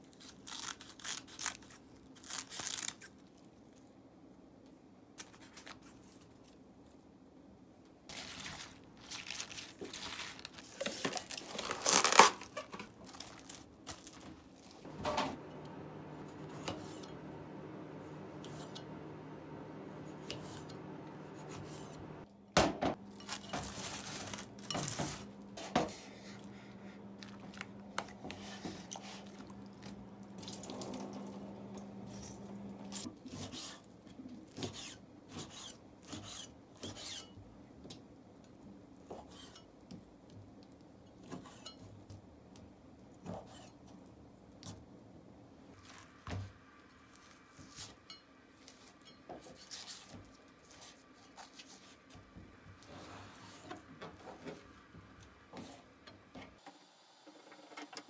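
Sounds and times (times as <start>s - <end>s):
appliance humming: 14.8s - 33.1s
dishes and utensils clinking: 23.1s - 25.3s.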